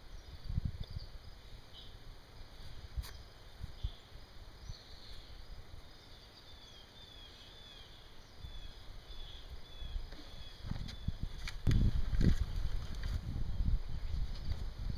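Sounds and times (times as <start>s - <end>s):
bird chirping: 0.0s - 11.4s.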